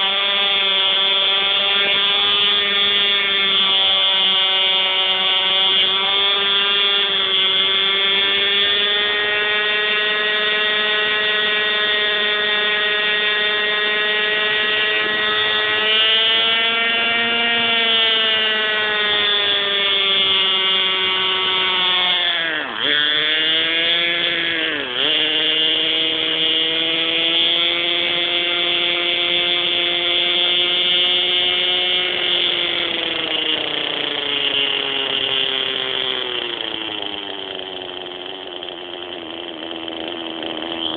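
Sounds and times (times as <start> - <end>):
model helicopter engine whining: 0.0 - 40.9.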